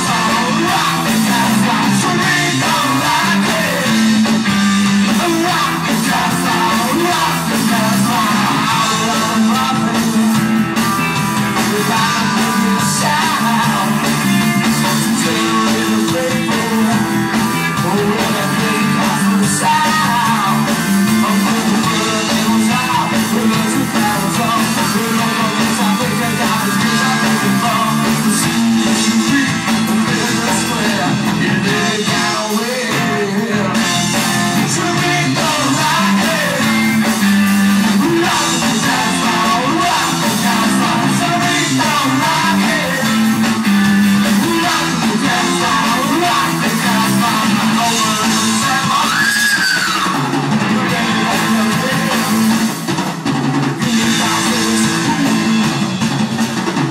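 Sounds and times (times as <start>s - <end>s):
singer: 0.0s - 53.0s, 53.7s - 56.0s
live rock band playing: 0.0s - 56.9s.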